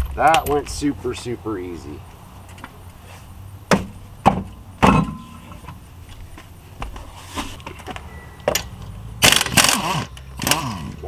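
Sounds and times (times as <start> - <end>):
sharp metallic clunks: 0.0 - 0.9, 3.7 - 5.8, 8.1 - 10.7.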